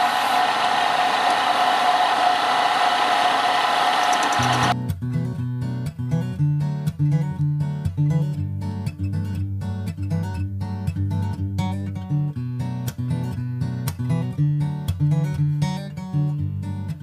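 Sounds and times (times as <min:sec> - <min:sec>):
strummed acoustic guitar music: 0:04.5 - 0:17.0.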